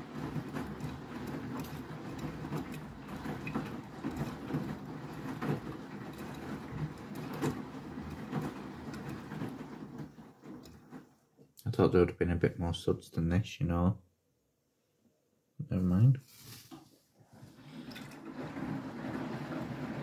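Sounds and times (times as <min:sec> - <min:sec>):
washing machine drum sloshing: 0:00.0 - 0:11.4, 0:17.3 - 0:20.0.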